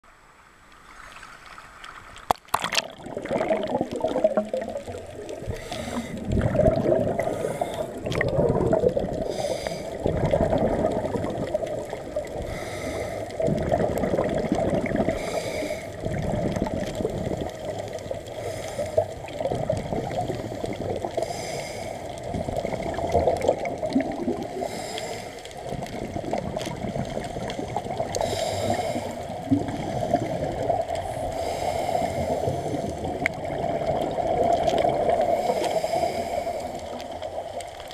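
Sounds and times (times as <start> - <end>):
underwater drone: 0.1 - 37.9
regulator bubbles gurgling: 2.2 - 37.9.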